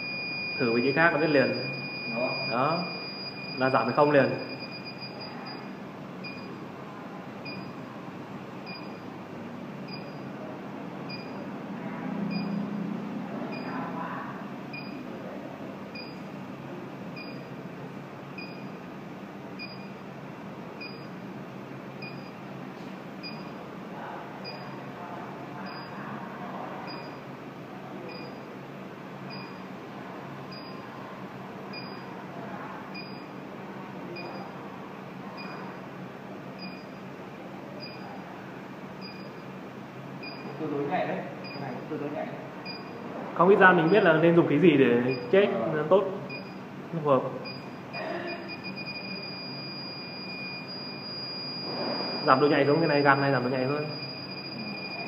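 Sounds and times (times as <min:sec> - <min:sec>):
gas detector beeping: 0:00.0 - 0:06.6, 0:08.6 - 0:09.0, 0:15.9 - 0:16.2, 0:17.2 - 0:17.5, 0:18.4 - 0:18.8, 0:19.6 - 0:20.0, 0:20.8 - 0:21.1, 0:22.0 - 0:22.4, 0:23.2 - 0:23.6, 0:24.4 - 0:24.8, 0:25.7 - 0:26.0, 0:29.3 - 0:29.6, 0:30.5 - 0:30.8, 0:31.7 - 0:32.1, 0:32.9 - 0:33.4, 0:34.2 - 0:34.5, 0:36.6 - 0:37.0, 0:39.0 - 0:39.4, 0:40.2 - 0:40.5, 0:47.4 - 0:55.0.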